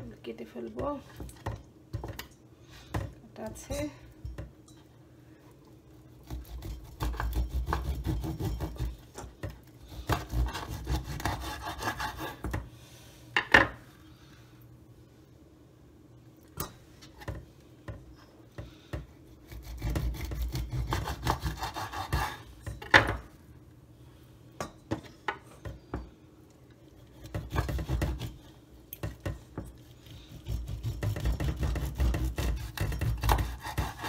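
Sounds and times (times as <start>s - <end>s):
knife sawing through fish: 10.2s - 12.4s, 19.4s - 22.5s, 30.0s - 34.0s.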